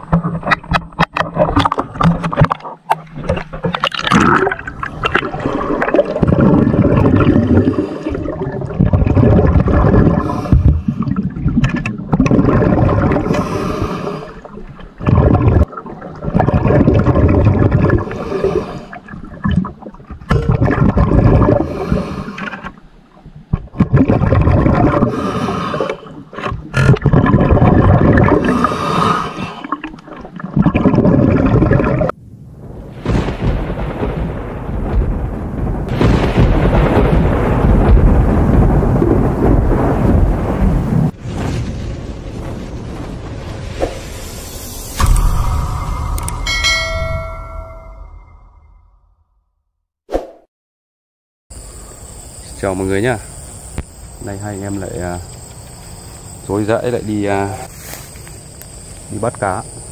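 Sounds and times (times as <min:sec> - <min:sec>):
water gurgling and bubbling: 0:00.0 - 0:32.2.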